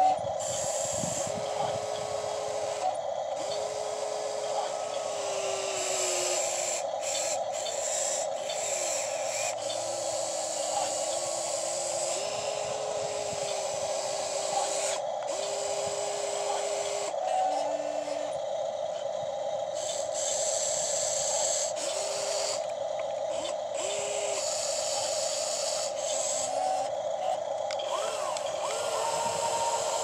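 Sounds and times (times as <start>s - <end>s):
small electric motors whining: 0.0s - 30.0s
steady hum: 0.0s - 30.0s.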